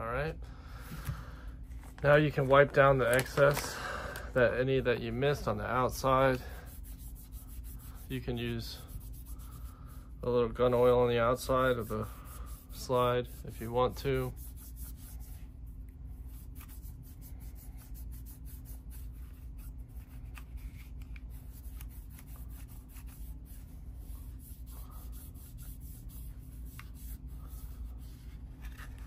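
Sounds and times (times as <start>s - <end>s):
steady low hum: 0.0s - 29.0s
pad rubbing on metal: 5.2s - 29.0s.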